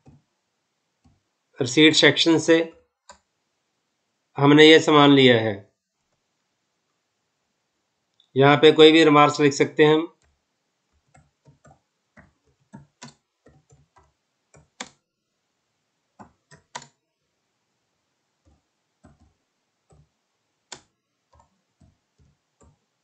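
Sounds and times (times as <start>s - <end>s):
faint keyboard typing: 0.0s - 0.4s, 1.0s - 3.4s, 9.8s - 15.0s, 16.1s - 17.0s, 18.4s - 23.0s.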